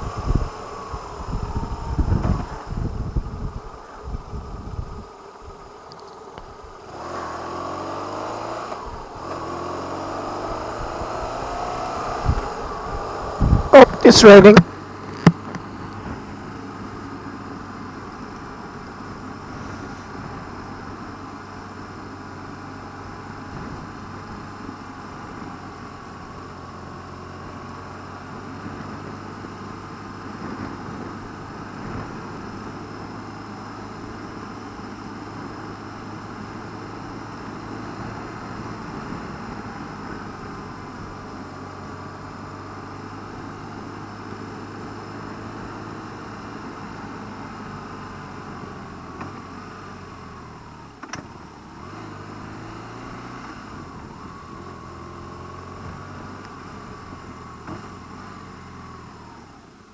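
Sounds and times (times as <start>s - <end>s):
wind noise: 0.0s - 5.6s, 10.7s - 16.6s
motorcycle engine running: 0.0s - 59.9s
road noise: 0.0s - 59.9s.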